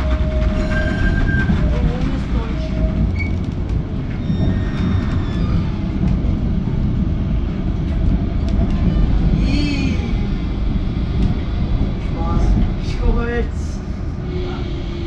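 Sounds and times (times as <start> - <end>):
tram wheels rumbling on rails: 0.0 - 15.0
high-pitched wheel squeal: 0.2 - 1.8, 4.2 - 5.8.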